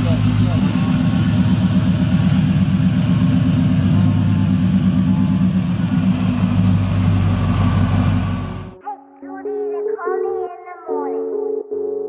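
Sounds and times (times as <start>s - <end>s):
pickup truck engine running: 0.0s - 8.8s.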